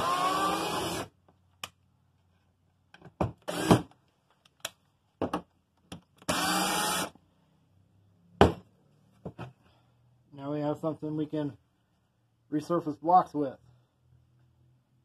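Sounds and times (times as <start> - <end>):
cordless drill whining: 0.0 - 1.1, 3.5 - 3.8, 6.2 - 7.2.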